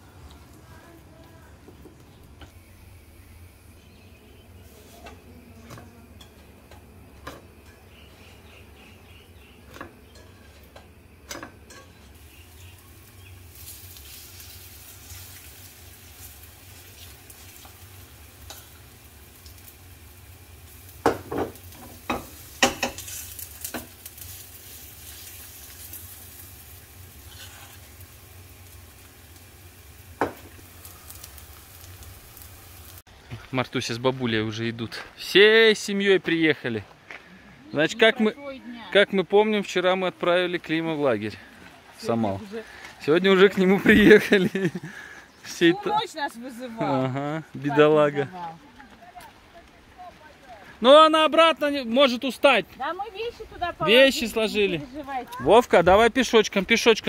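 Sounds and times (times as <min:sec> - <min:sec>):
oil sizzling in a frying pan: 0:06.1 - 0:33.1.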